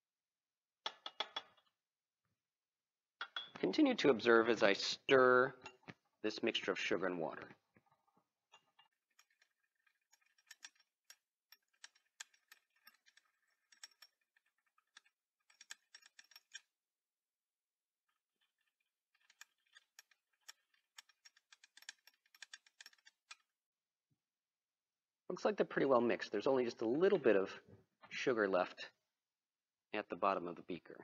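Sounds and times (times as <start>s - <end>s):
glass rod clinking in beaker: 3.2s - 3.6s, 5.6s - 6.0s.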